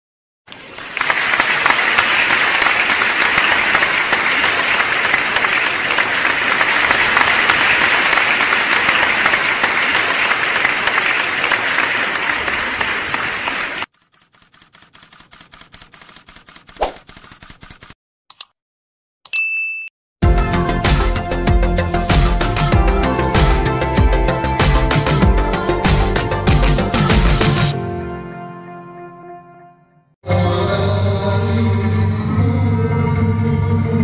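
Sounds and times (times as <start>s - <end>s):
audience applauding: 0.5s - 13.9s.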